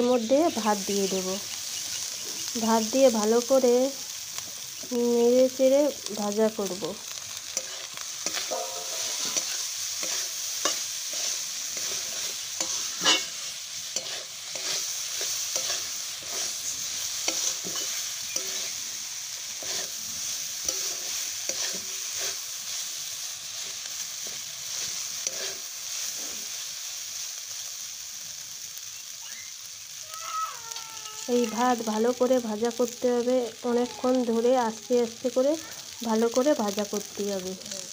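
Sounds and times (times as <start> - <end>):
rice sizzling in oil: 0.0 - 37.9
metal spatula scraping pan: 7.6 - 16.6, 17.2 - 18.8, 19.6 - 20.0, 20.6 - 22.4, 23.6 - 25.6.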